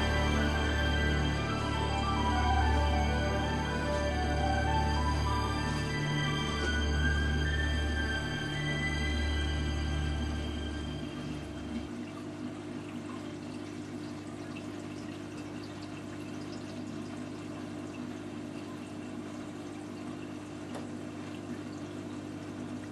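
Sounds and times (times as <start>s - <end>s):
low hum: 0.0s - 12.4s
water trickling and splashing: 11.2s - 22.9s.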